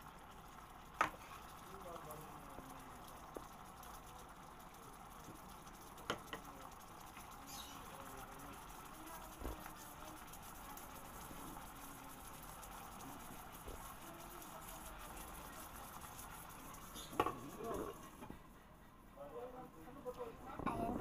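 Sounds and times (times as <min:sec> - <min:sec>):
spoon scraping and tapping pot: 0:06.0 - 0:06.5, 0:16.8 - 0:17.6.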